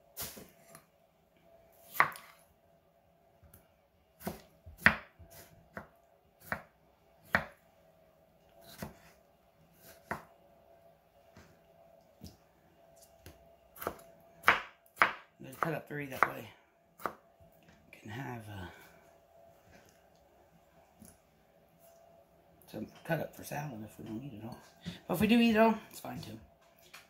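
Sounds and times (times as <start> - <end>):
knife chopping on wooden board: 1.8 - 2.4, 4.2 - 7.6, 8.6 - 9.1, 9.8 - 10.3, 13.2 - 16.4, 17.0 - 17.2.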